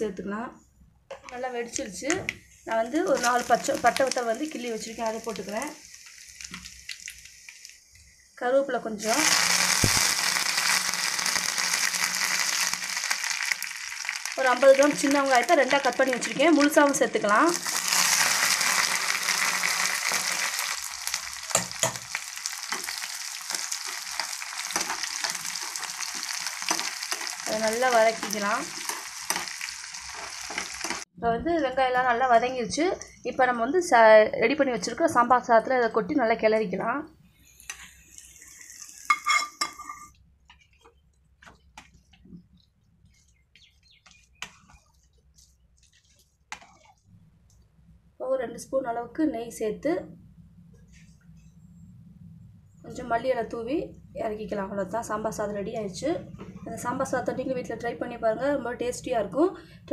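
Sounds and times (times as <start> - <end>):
onions sizzling in hot oil: 2.7 - 8.2, 8.8 - 31.1, 37.6 - 40.0
spoon stirring and scraping pan: 17.5 - 31.1, 37.6 - 47.0
steel spoon clinking on pan: 39.1 - 40.1
spoon scraping and tapping: 39.1 - 40.9.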